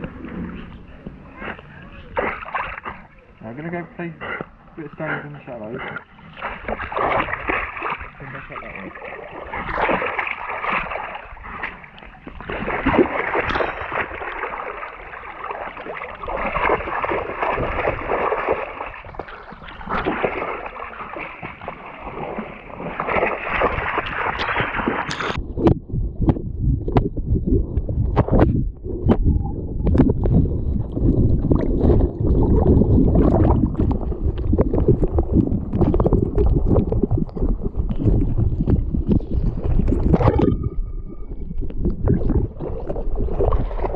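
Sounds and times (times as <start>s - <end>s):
river water splashing: 0.0s - 3.1s, 4.8s - 25.4s.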